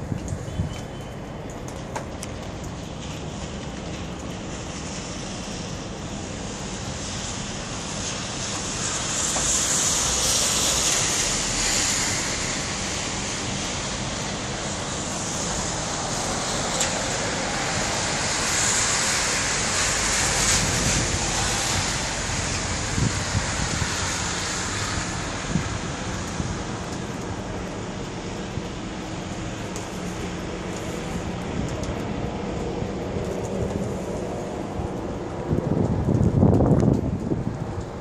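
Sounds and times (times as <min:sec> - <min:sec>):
tyres hissing on slush: 0:02.9 - 0:31.5.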